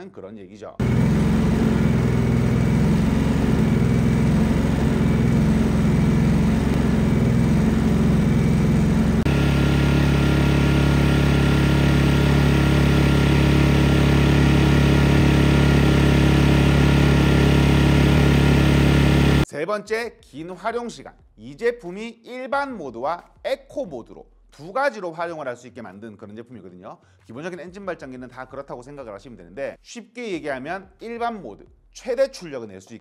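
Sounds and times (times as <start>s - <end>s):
engine generator humming: 0.8s - 19.4s
inverter generator running: 0.8s - 19.4s.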